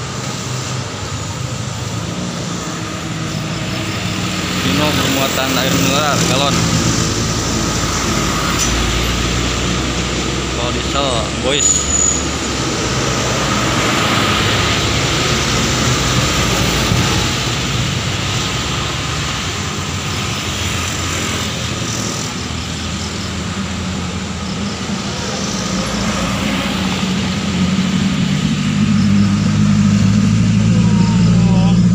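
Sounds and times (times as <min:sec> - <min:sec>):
cars passing: 0:00.0 - 0:31.9
truck engine: 0:00.0 - 0:31.9
motorcycle passing: 0:12.2 - 0:31.9.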